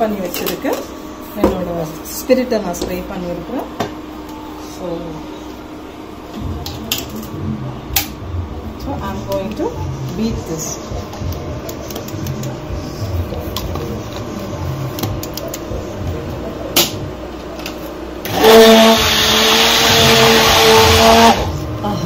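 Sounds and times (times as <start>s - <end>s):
hand blender motor whining: 18.3s - 21.6s.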